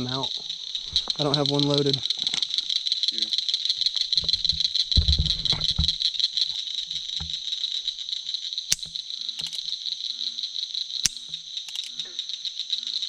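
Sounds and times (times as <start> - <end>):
insects trilling: 0.0 - 13.0
sharp clicks: 8.7 - 9.8, 11.1 - 12.1.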